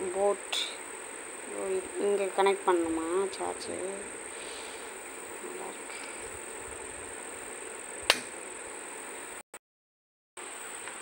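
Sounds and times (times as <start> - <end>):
steady high-pitched hiss: 0.0 - 9.4
charging case lid snapping open: 8.1 - 8.3.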